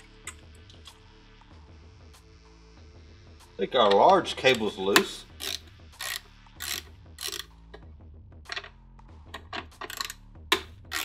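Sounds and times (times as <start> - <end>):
socket ratchet clicking: 5.3 - 7.9, 9.3 - 11.0.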